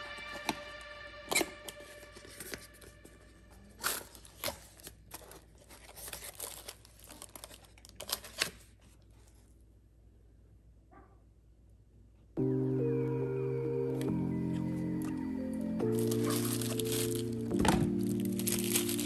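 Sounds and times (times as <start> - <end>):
packaging tearing and crinkling: 3.7 - 9.0, 15.8 - 19.0.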